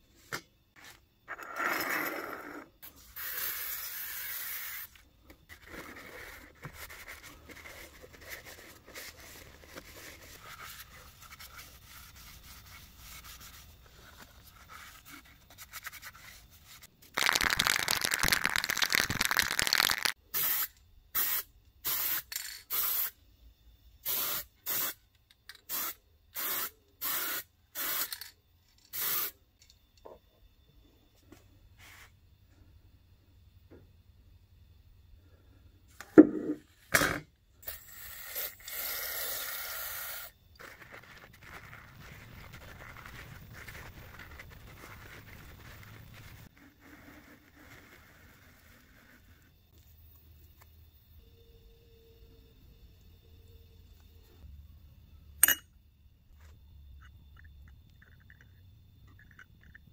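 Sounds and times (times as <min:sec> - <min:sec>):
spray paint hissing: 0:03.0 - 0:05.0, 0:17.2 - 0:23.2, 0:24.0 - 0:25.0, 0:25.7 - 0:28.1, 0:28.9 - 0:29.3, 0:37.6 - 0:40.3.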